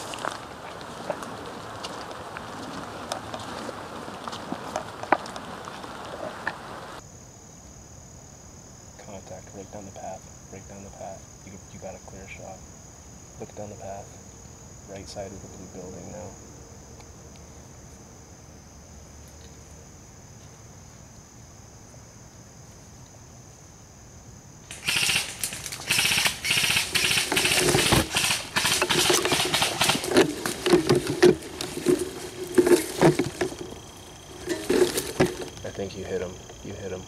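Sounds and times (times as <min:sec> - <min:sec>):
crickets trilling: 0:00.0 - 0:37.0
netting rustling against camera: 0:24.7 - 0:35.6.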